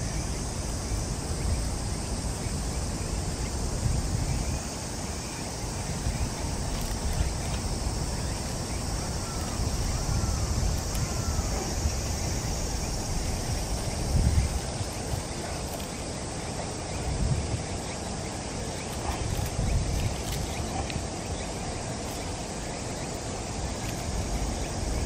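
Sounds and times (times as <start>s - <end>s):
steady high hiss: 0.0s - 25.0s
wind buffeting microphone: 0.0s - 25.0s.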